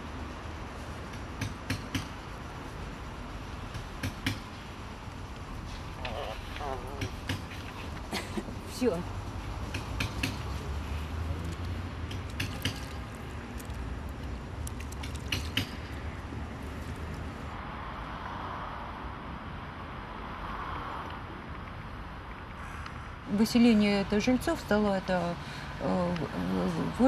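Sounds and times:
steady background hiss: 0:00.0 - 0:14.6
household objects clicking: 0:11.4 - 0:16.0.

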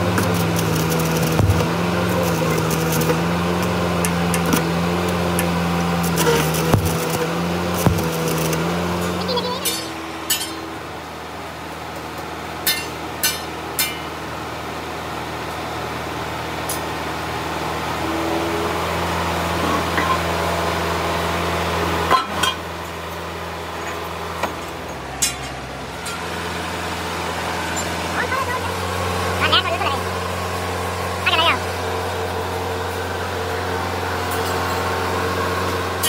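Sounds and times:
hydraulic press humming: 0:00.0 - 0:11.1.

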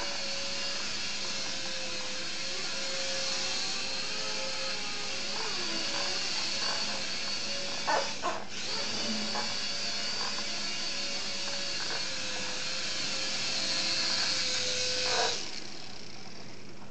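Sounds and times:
toy helicopter rotor whirring: 0:00.0 - 0:16.9.

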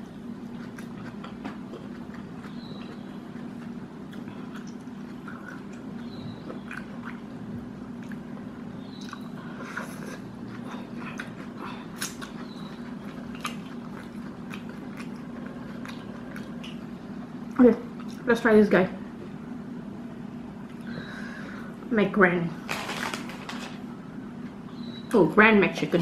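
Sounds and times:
person chewing food: 0:00.0 - 0:17.0
steady low hum: 0:00.0 - 0:26.0.

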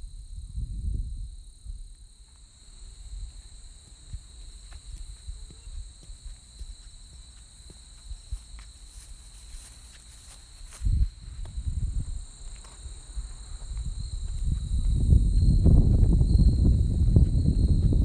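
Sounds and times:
wind on microphone: 0:00.0 - 0:02.1, 0:10.8 - 0:18.0
insects chirring: 0:00.0 - 0:18.0
footsteps on paved path: 0:01.9 - 0:18.0.

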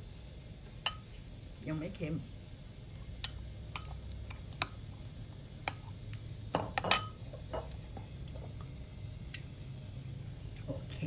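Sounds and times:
metal spoon clinking against bowl: 0:06.8 - 0:07.2.

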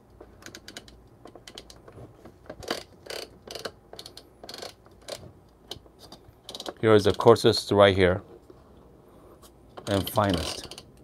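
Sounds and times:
grinder hopper ratcheting clicks: 0:06.4 - 0:07.3, 0:09.8 - 0:11.0.

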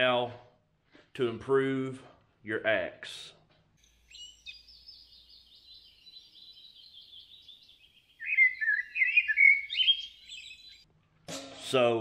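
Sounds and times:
high bird chirping: 0:03.8 - 0:10.9
louder lower bird chirps: 0:03.8 - 0:10.9.

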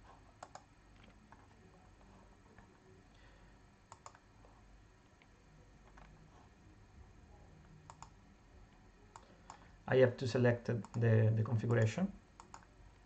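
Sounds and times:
computer mouse clicks: 0:00.4 - 0:01.5, 0:03.9 - 0:04.2, 0:07.8 - 0:08.2, 0:09.1 - 0:09.7, 0:10.8 - 0:11.0, 0:11.6 - 0:12.7.

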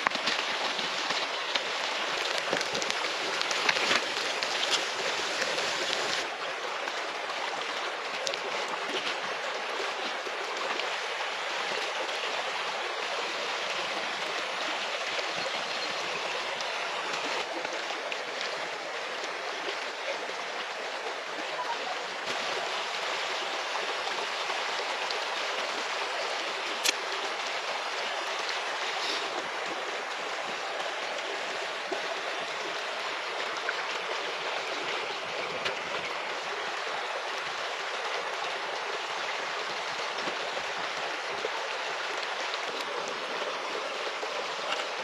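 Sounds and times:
river water rushing: 0:00.0 - 0:45.0.

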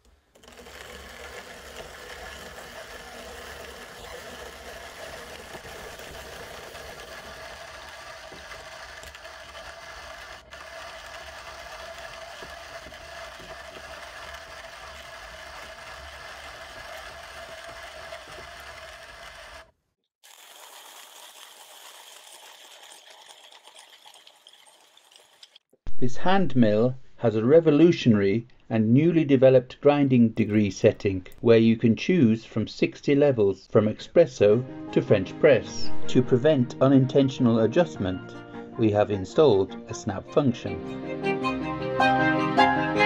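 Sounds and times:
coffee grinder grinding beans: 0:00.0 - 0:25.7.

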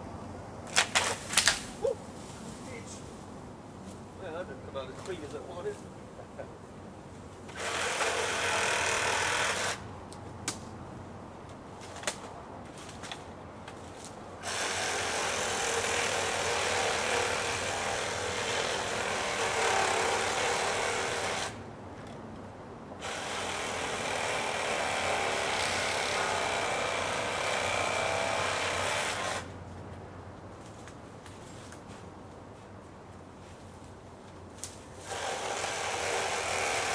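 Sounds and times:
power saw cutting wood: 0:07.5 - 0:09.8, 0:14.4 - 0:21.6, 0:23.0 - 0:29.5, 0:35.0 - 0:36.9.

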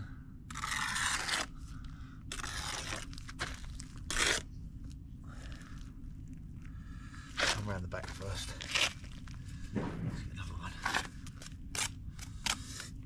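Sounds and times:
trowel scraping wet mortar: 0:00.5 - 0:01.5, 0:02.3 - 0:04.5.

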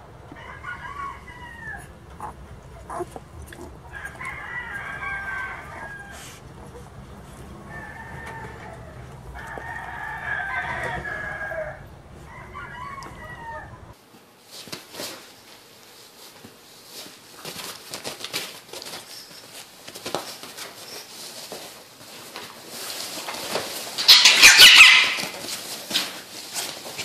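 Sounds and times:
small dogs scuffling on fabric: 0:00.0 - 0:24.2, 0:25.1 - 0:27.0
puppy squealing and whining: 0:00.5 - 0:11.8, 0:12.4 - 0:13.9, 0:24.1 - 0:25.5.

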